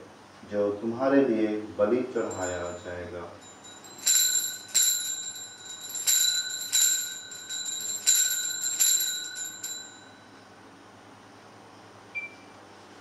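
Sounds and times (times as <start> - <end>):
altar bell ringing: 2.2 - 10.4.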